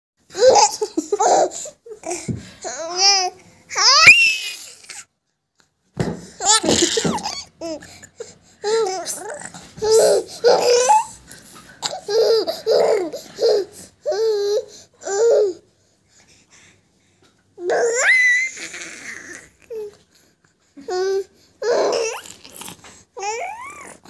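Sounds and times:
baby laughing: 0.3 - 1.7, 6.4 - 7.9, 8.7 - 11.2, 11.8 - 15.6.

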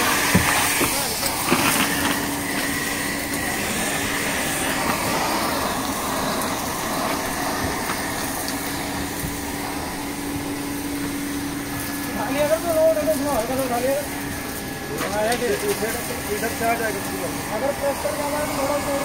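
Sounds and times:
vacuum tool sucking over carpet: 0.0 - 12.0
vacuum cleaner running: 0.0 - 19.0.

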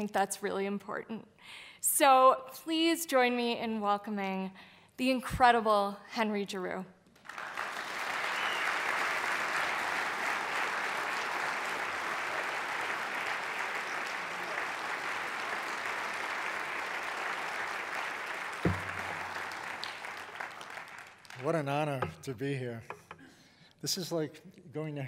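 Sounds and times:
audience applauding: 7.2 - 22.2
low thump: 18.7 - 19.5.

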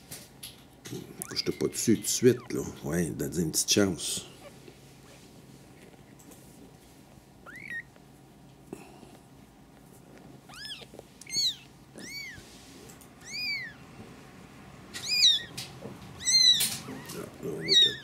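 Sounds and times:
kitten mewing: 2.2 - 2.7, 7.4 - 8.0, 10.4 - 12.4, 13.2 - 13.8, 15.0 - 15.6, 16.2 - 18.0.

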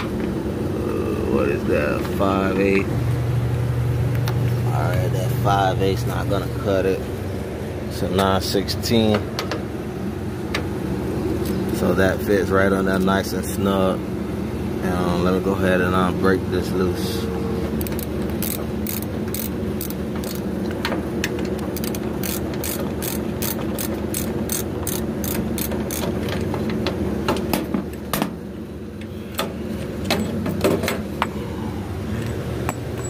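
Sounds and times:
steady low hum: 0.0 - 33.0
socket ratchet clicking: 17.8 - 20.4, 21.5 - 26.1.

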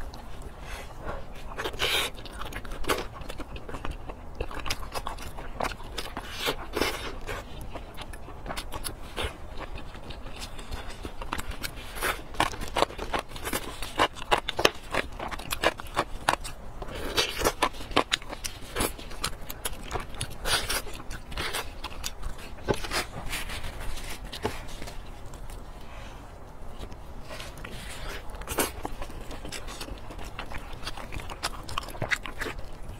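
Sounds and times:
wet chewing and lip smacking: 0.0 - 32.9.

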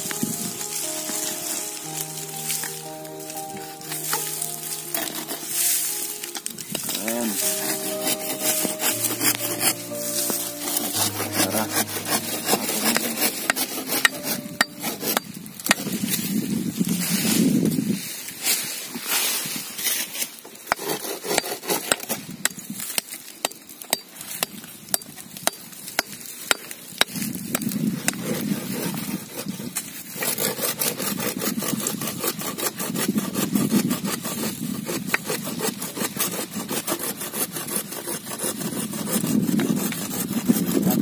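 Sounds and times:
metal tools striking and scraping: 3.5 - 15.9.

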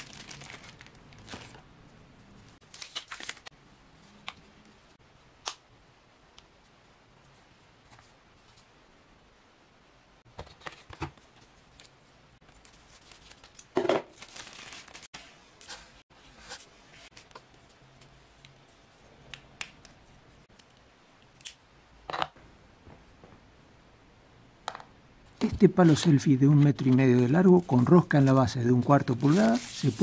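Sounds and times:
packaging sleeve rustling: 0.0 - 1.6, 2.6 - 3.5, 11.8 - 15.9, 25.8 - 30.0.

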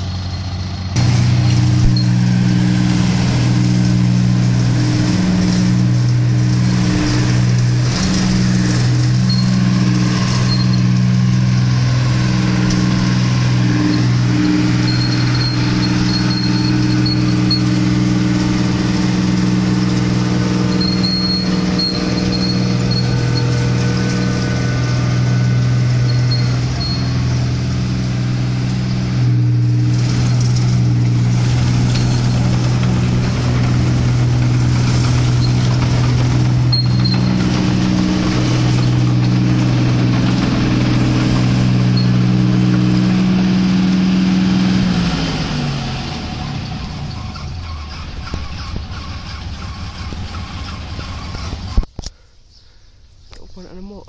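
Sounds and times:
combine harvester engine running: 0.0 - 52.1.

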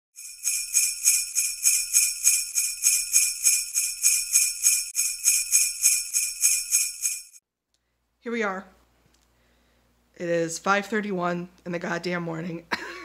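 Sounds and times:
sleigh bells jingling: 0.2 - 7.4.

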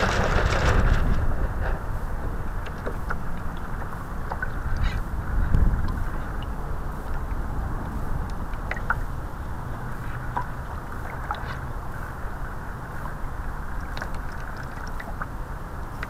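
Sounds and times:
wind buffeting microphone: 0.0 - 10.9
water rushing along a hull: 0.0 - 16.0.

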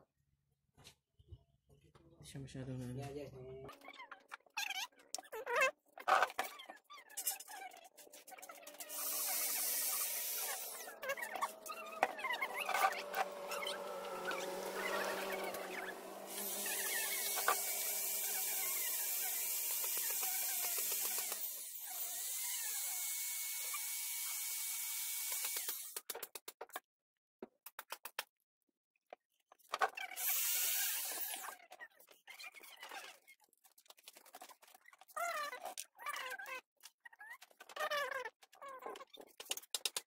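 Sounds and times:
power tool whirring: 8.6 - 26.0, 30.2 - 31.6.

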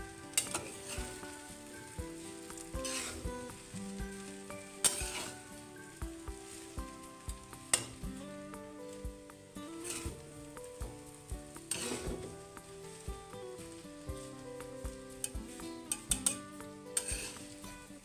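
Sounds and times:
rice sizzling in a pan: 0.0 - 18.0
metal spatula scraping a pan: 0.2 - 6.8, 7.6 - 8.0, 9.7 - 10.2, 11.6 - 12.4, 15.2 - 17.9.

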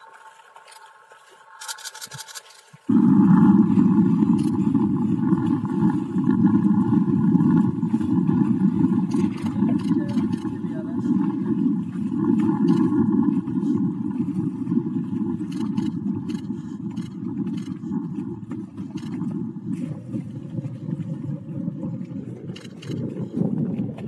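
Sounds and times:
motorboat engine running: 0.0 - 24.0
steady low tone: 2.9 - 23.0
wind rushing past microphone: 2.9 - 24.0.

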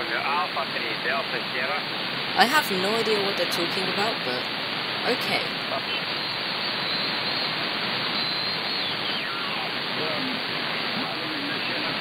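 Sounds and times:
radio static hiss: 0.0 - 3.2, 4.0 - 12.0
garbled radio voice: 5.1 - 6.0, 9.2 - 12.0.

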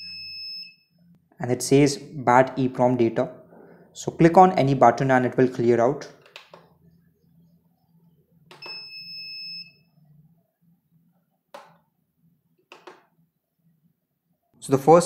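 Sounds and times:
electronic buzzer beep: 0.0 - 1.0, 8.5 - 10.0.

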